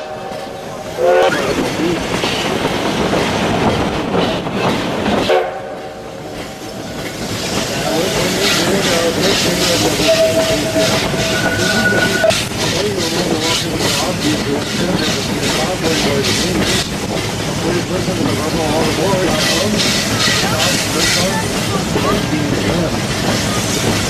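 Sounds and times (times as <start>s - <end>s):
clatter of train cars: 0.0s - 24.0s
steam whistle toots: 10.0s - 12.4s.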